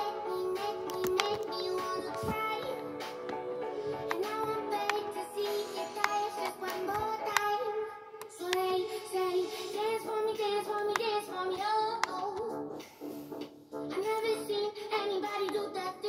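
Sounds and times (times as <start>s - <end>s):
high singing voice: 0.0s - 12.6s.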